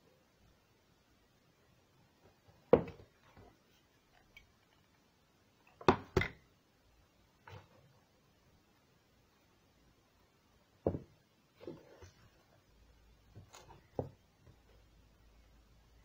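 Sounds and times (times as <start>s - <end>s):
knocks on wooden table: 10.8s - 11.1s.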